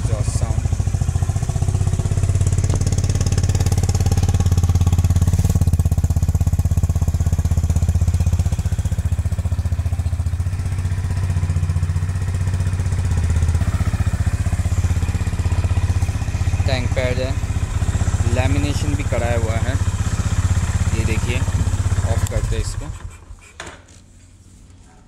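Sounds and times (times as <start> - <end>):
motorcycle engine idling: 0.0 - 25.0.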